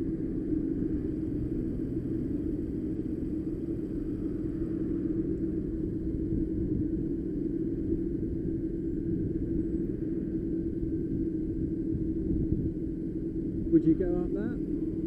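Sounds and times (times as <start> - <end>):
go-kart engine rumble: 0.0 - 15.0.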